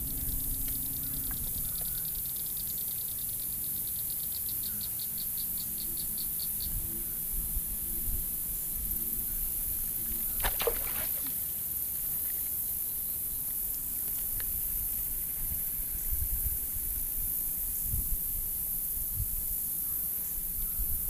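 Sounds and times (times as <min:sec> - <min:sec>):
low rumble: 0:00.0 - 0:01.8
high insect buzz: 0:00.0 - 0:21.0.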